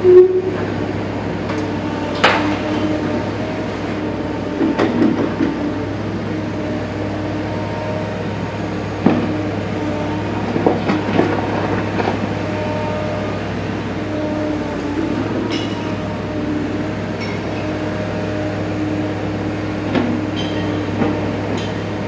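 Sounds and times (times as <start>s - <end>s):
excavator diesel engine running: 0.0s - 22.0s
excavator bucket clanking: 19.9s - 21.9s.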